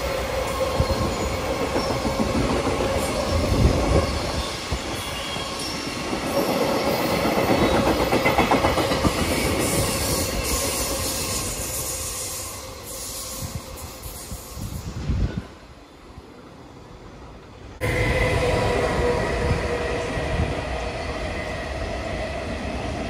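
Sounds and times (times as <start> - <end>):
train rumble: 0.0 - 15.6, 17.2 - 23.0.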